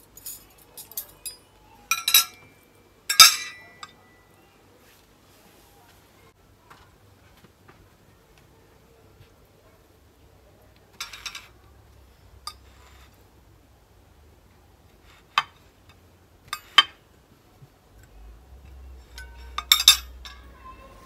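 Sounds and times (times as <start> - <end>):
dishes and cutlery clinking: 0.0 - 4.2, 10.9 - 11.6, 12.4 - 13.2, 15.0 - 17.0, 18.7 - 21.0.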